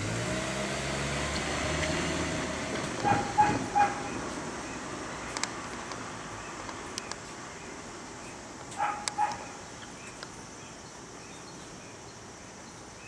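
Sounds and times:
faint outdoor background noise: 0.0s - 13.0s
dog barking: 3.0s - 4.2s, 8.8s - 9.6s.

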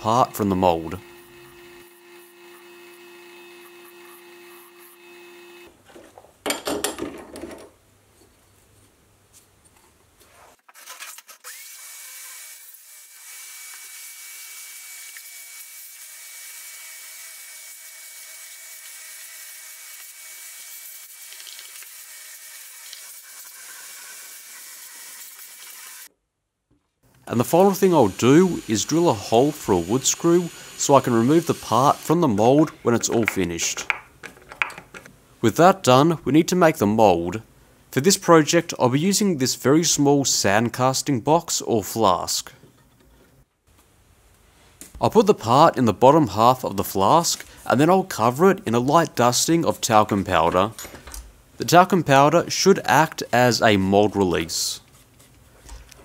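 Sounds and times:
lathe motor hum: 0.0s - 5.7s.

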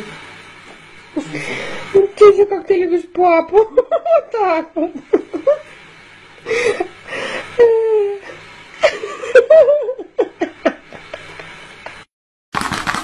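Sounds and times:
person laughing: 1.2s - 2.2s, 6.5s - 12.0s.

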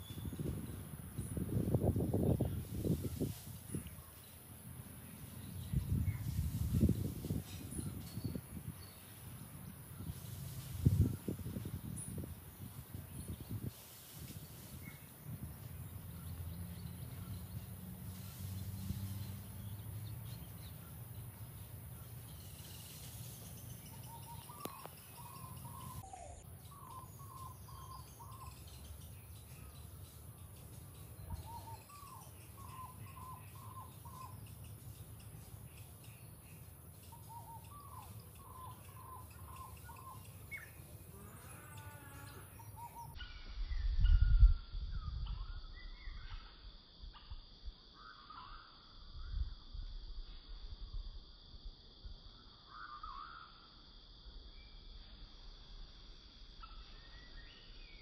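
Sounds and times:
high-pitched hiss: 0.0s - 58.0s
bird calling in quick notes: 37.1s - 40.8s.

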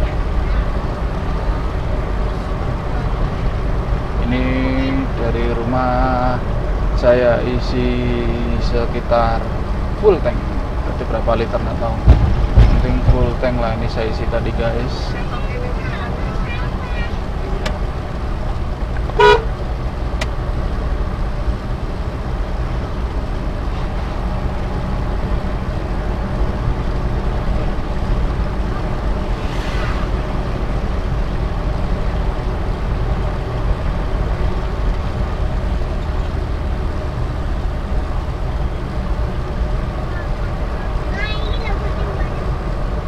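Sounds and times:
pickup engine and road noise: 0.0s - 43.0s
short loud horn toot: 19.2s - 19.5s.

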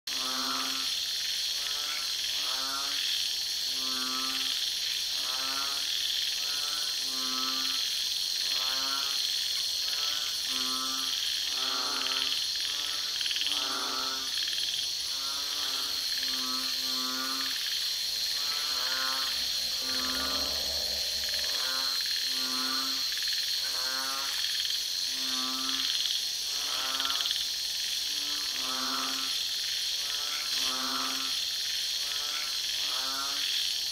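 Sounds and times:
fast cricket chirp: 0.1s - 33.9s
frogs croaking: 0.1s - 33.9s
insects chirring: 0.1s - 33.9s.

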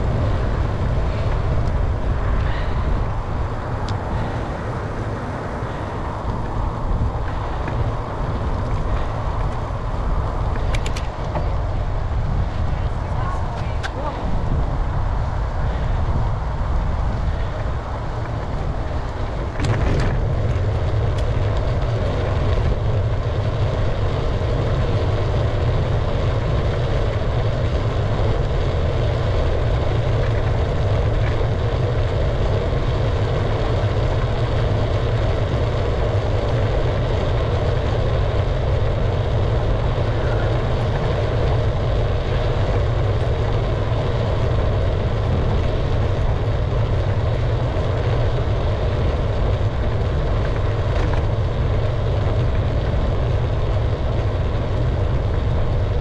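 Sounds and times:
bicycle tyres on road: 0.0s - 56.0s
wind rushing over microphone: 0.0s - 56.0s.

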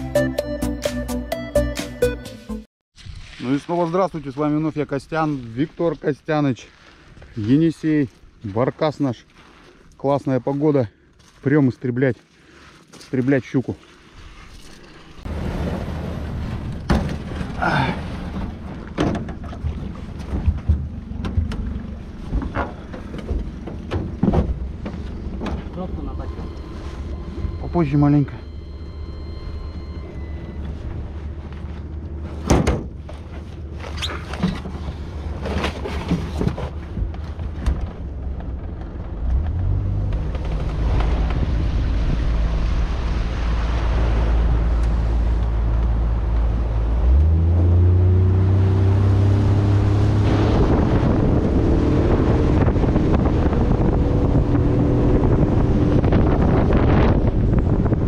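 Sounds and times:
wind and water rushing: 13.8s - 28.3s, 39.4s - 58.0s
boat engine running: 15.0s - 58.0s
boat engine knocks: 18.3s - 25.9s.

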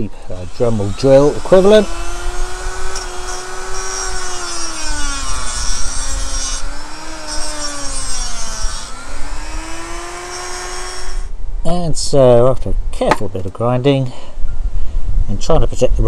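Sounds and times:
rotary tool grinding metal: 0.0s - 11.3s.

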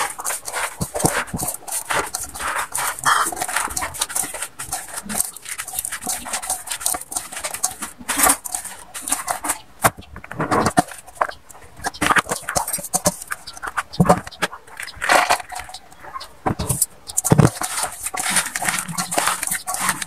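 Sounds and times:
hands squishing wet shreds: 0.0s - 20.0s.

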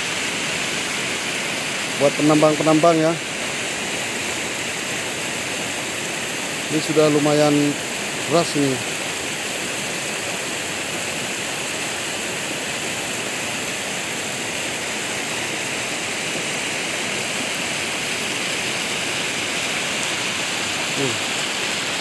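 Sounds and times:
turbulent water rushing: 0.0s - 22.0s.

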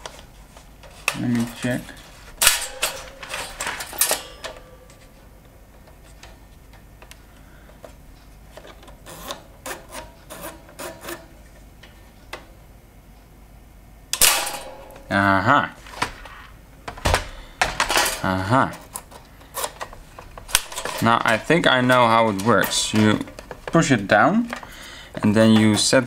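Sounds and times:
toaster mechanism clicking: 2.4s - 4.9s, 14.2s - 15.1s
toaster part scraping: 9.0s - 11.3s.

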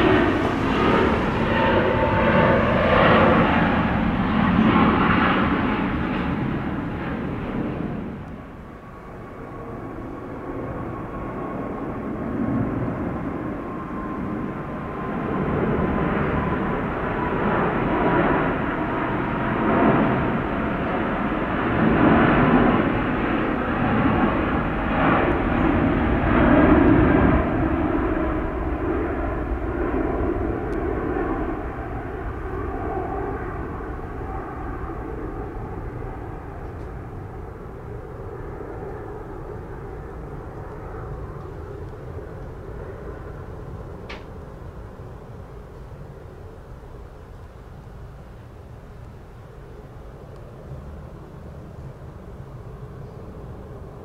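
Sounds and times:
falling engine whine: 0.0s - 8.9s
jet airliner engines roaring: 0.0s - 54.0s.

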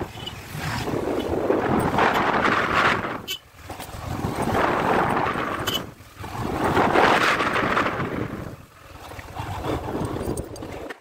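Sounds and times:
wind rushing over microphone: 0.0s - 3.3s, 3.9s - 10.9s
motorcycle riding noise: 0.0s - 11.0s.

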